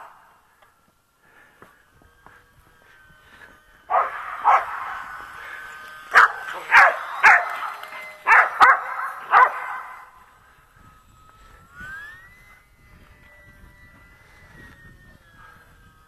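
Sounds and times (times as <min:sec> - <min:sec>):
electric model plane motor whine: 0:00.0 - 0:16.0
dog barking: 0:03.9 - 0:04.8, 0:06.1 - 0:07.6, 0:08.2 - 0:10.0.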